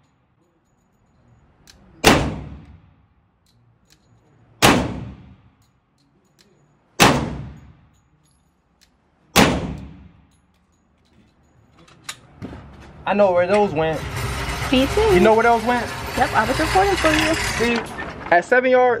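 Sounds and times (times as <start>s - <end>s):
pistol shots with ringing: 2.0s - 2.8s, 4.6s - 5.5s, 7.0s - 7.9s, 9.4s - 10.3s.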